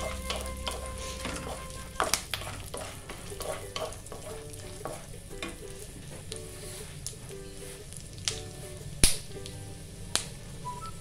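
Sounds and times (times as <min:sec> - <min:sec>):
wooden spatula scraping a pan: 0:00.0 - 0:07.9
light sizzle: 0:00.0 - 0:11.0.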